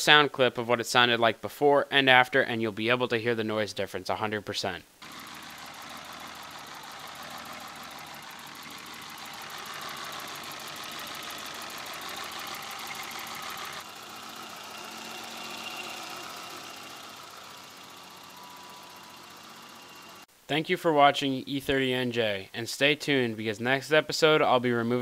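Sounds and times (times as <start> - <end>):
car engine idling with ticking: 5.0 - 20.2.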